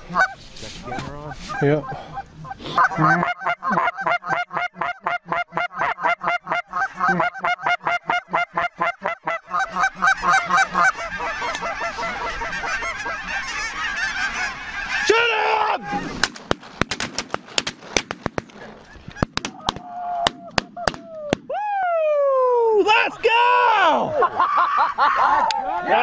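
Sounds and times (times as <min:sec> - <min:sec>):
geese honking: 0:00.0 - 0:16.7, 0:18.5 - 0:19.8.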